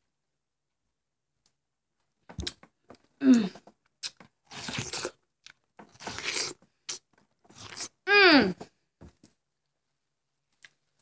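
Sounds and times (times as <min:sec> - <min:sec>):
person chewing watermelon: 0:03.4 - 0:08.0.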